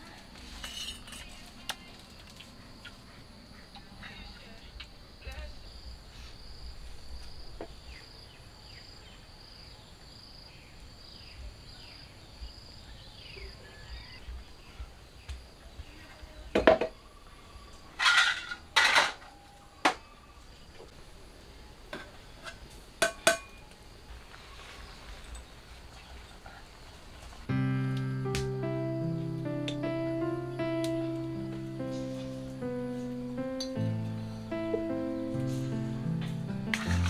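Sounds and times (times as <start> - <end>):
metal plates and bowls clinking: 18.0 - 19.2, 36.7 - 37.0
high chirping: 27.5 - 37.0.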